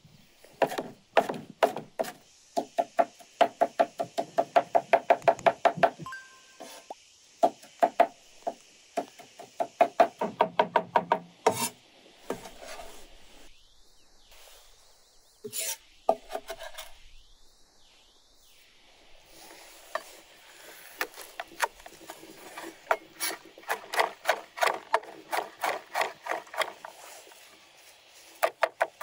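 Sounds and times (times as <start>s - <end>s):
cleaver scraping board: 0.6s - 2.2s, 11.4s - 13.4s, 15.5s - 17.0s, 19.4s - 29.0s
cleaver chopping on wooden board: 0.6s - 6.0s.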